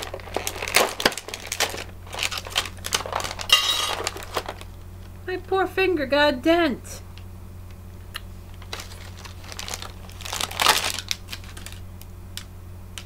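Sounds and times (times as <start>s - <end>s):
plastic snack packaging crinkling: 0.0s - 4.8s, 8.5s - 12.5s.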